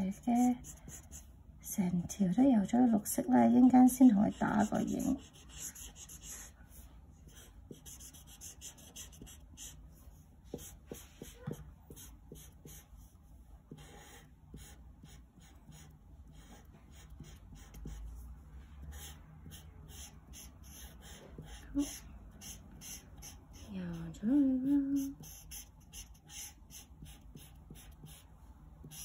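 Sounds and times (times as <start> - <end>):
marker rubbing on paper: 4.2 - 18.2, 18.9 - 23.7, 25.0 - 29.0.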